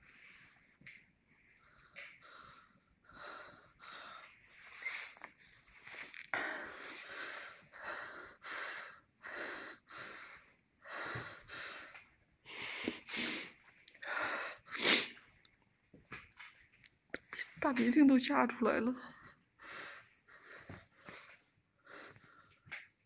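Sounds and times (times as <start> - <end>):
heavy rapid breathing: 6.0 - 15.2.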